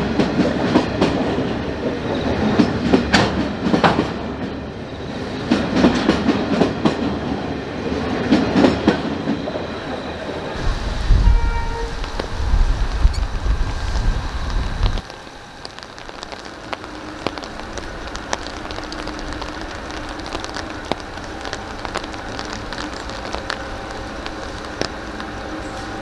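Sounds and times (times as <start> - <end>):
faint low train hum: 0.0 - 26.0
raindrops ticking: 11.9 - 26.0.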